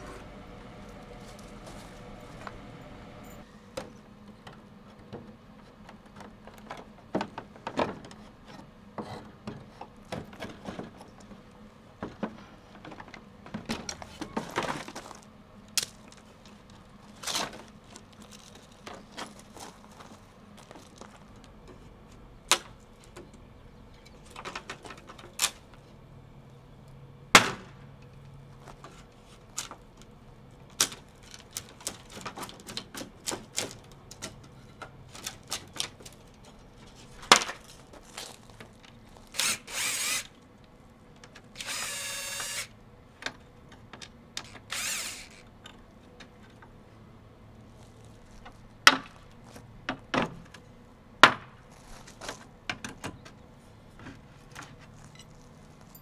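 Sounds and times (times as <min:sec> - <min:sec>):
drawn-out squeal: 0:00.0 - 0:03.7.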